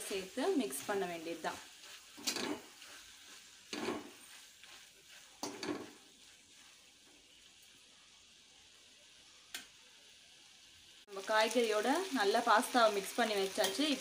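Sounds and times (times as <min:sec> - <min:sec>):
food sizzling: 0:00.0 - 0:14.0
metal spoon scraping pan: 0:01.7 - 0:06.6.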